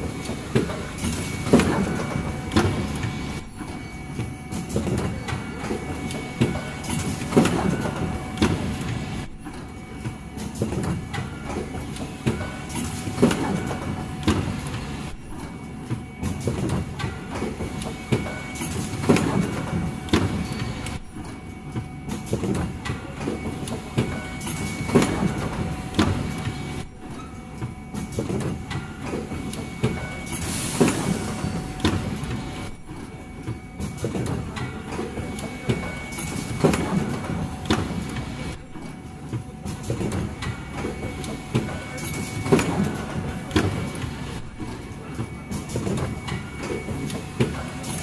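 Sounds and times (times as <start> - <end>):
machine hum: 0.0 - 10.4, 13.6 - 16.2, 19.8 - 28.1, 31.6 - 33.6
loud machine clack: 0.0 - 27.4, 28.0 - 39.2, 39.8 - 48.0
conveyor clatter: 0.0 - 48.0.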